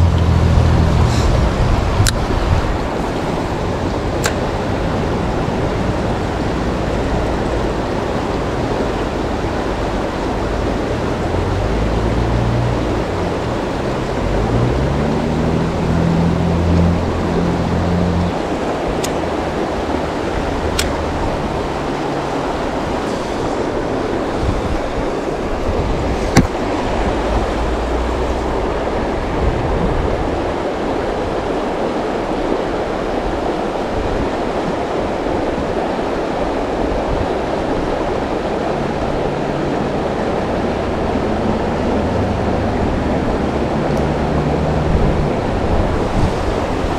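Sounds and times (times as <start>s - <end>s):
river water rushing: 0.0s - 46.9s
sharp click: 4.2s - 4.4s, 20.8s - 21.0s.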